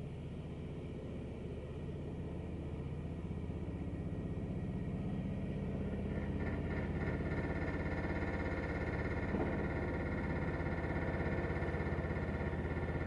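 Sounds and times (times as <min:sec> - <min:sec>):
high mechanical whine: 0:05.8 - 0:13.0.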